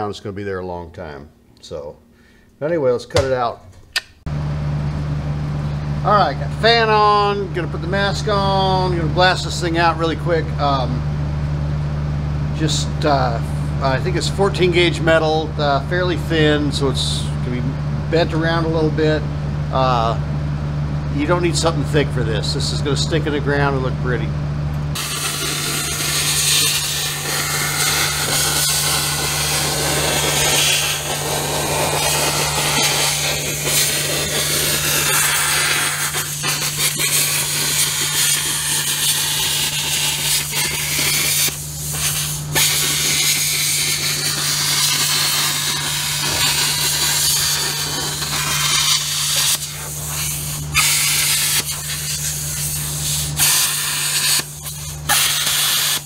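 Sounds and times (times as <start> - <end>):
low hum: 4.3 - 53.2
plasma cutter hissing: 25.0 - 56.0.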